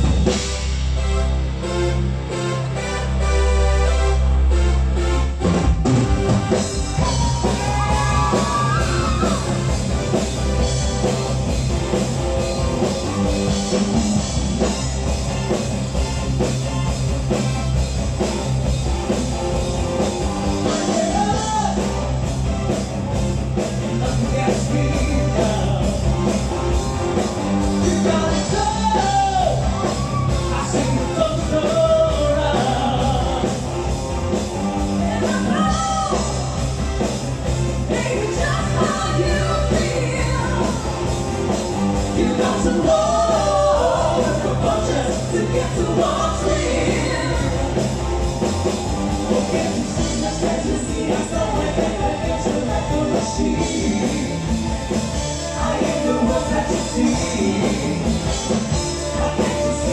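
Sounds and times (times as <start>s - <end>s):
bass: 0.0s - 59.9s
drums: 0.0s - 59.9s
live rock band: 0.0s - 59.9s
group of singers: 6.9s - 10.7s, 23.7s - 26.5s, 27.2s - 33.9s, 37.8s - 59.9s.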